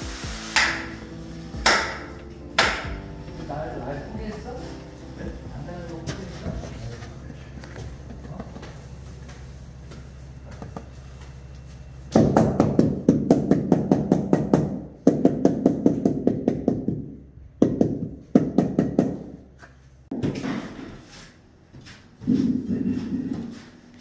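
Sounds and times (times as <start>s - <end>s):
low steady hum: 2.1s - 13.9s.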